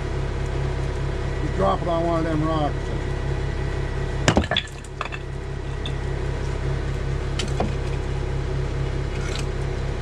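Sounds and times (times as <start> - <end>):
diesel engine idling: 0.0 - 10.0
concrete block cracking on boulder: 4.3 - 6.0.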